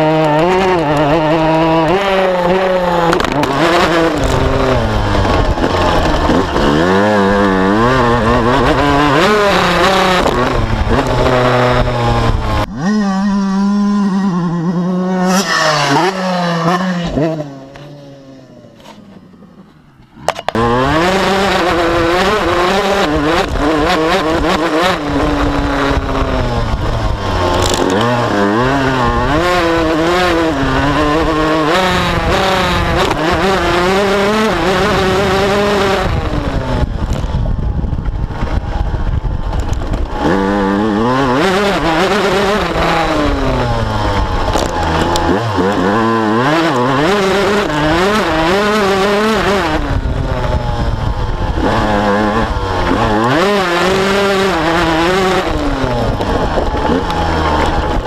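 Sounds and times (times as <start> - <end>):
motocross bike engine revving: 0.0 - 58.0.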